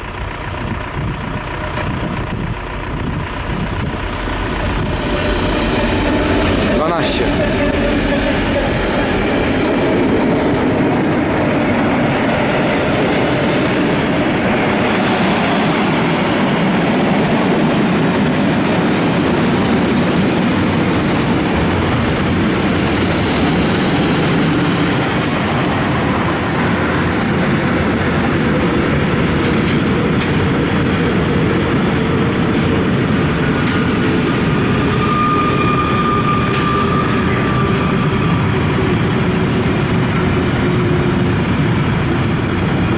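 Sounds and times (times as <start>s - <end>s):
train wheels rumbling on rails: 0.0s - 42.9s
high-pitched wheel squeal: 24.8s - 27.8s, 34.6s - 39.0s.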